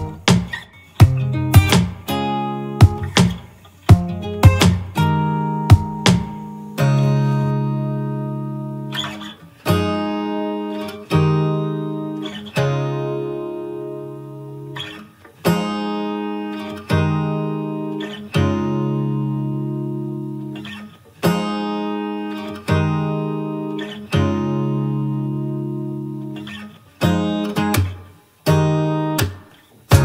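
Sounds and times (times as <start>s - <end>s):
strummed acoustic guitar chords: 0.0s - 30.0s.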